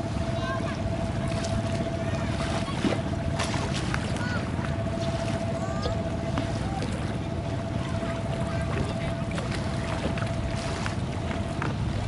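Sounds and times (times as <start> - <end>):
faint constant hum: 0.0 - 12.0
river low rumble: 0.0 - 12.0
faint voices: 4.0 - 10.6.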